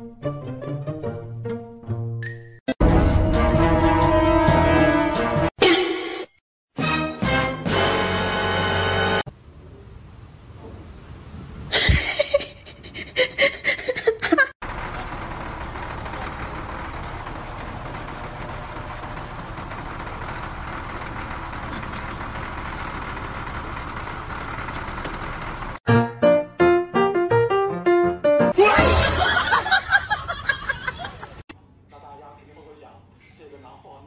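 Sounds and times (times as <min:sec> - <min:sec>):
diesel engine running: 0:14.6 - 0:25.8.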